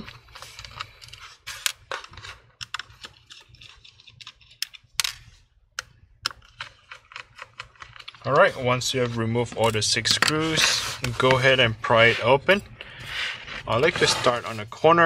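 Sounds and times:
faint scraping: 0:10.3 - 0:15.0.

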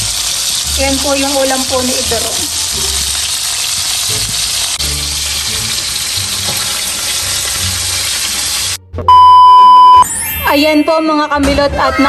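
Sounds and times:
fish frying in hot oil: 0:00.0 - 0:08.8
loud electronic beep: 0:09.1 - 0:10.8.

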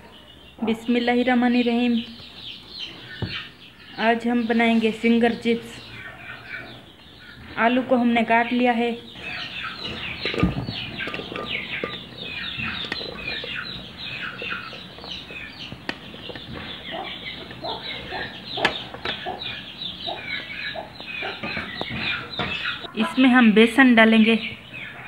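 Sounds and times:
chickens clucking and peeping: 0:00.0 - 0:25.0
potato sticks knocking into pot: 0:09.8 - 0:19.3.

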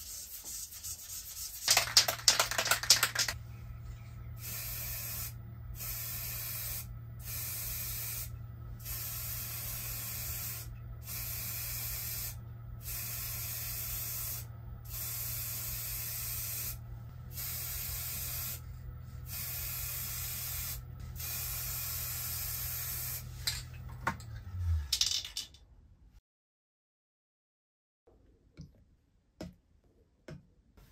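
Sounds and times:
spray paint can hissing: 0:00.0 - 0:03.4, 0:04.4 - 0:18.6, 0:19.2 - 0:23.6.

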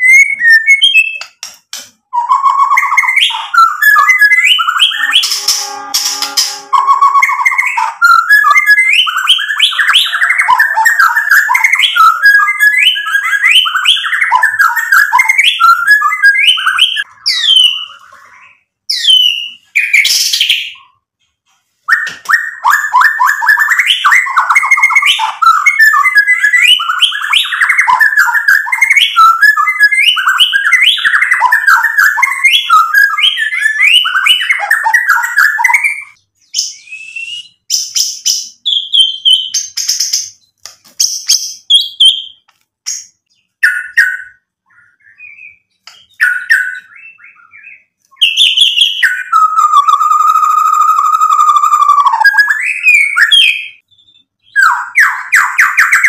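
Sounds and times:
bird singing chattering whistles: 0:00.0 - 0:21.0.

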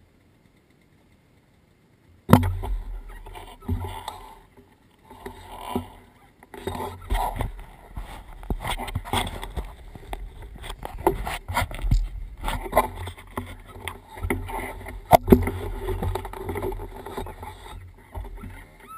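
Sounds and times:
wind rumbling on microphone: 0:02.2 - 0:18.9.

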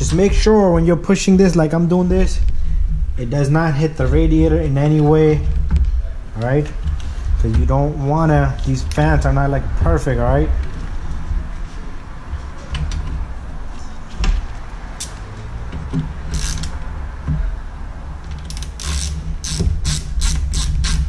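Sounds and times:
steady low hum: 0:00.0 - 0:21.0
hand ratchet clicking: 0:16.3 - 0:16.8, 0:18.3 - 0:21.0.

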